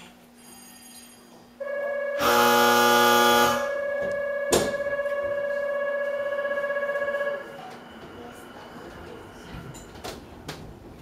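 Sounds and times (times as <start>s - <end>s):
electric bell ringing: 0.5s - 8.7s
buzzer-like tone: 1.6s - 7.5s.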